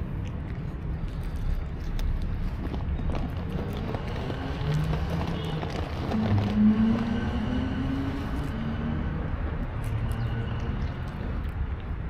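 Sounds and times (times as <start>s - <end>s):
cat chewing dry kibble: 0.0s - 6.6s, 9.4s - 12.0s
passing vehicle engine rumble: 0.0s - 12.0s.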